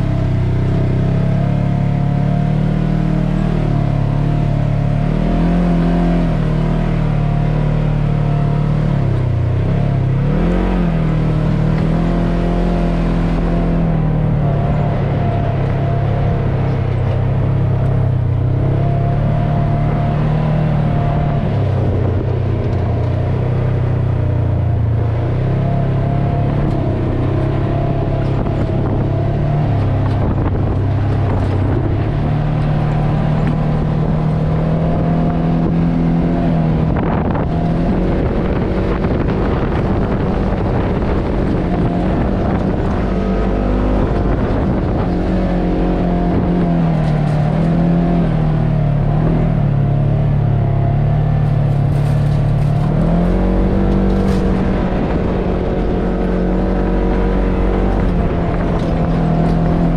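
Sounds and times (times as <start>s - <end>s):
side-by-side engine running: 0.0s - 59.9s.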